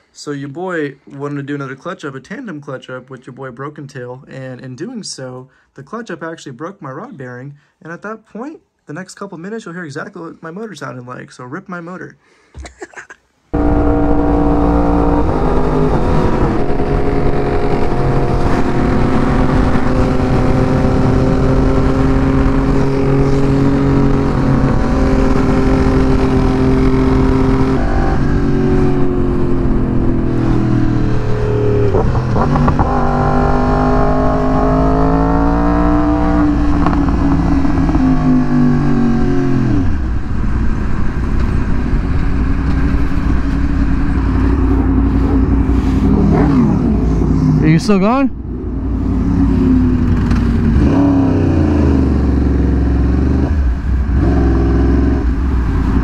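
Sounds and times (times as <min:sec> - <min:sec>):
wind rumble: 0:13.5 - 0:56.0
motorcycle engine running: 0:13.6 - 0:35.4, 0:36.2 - 0:47.7, 0:48.4 - 0:56.0.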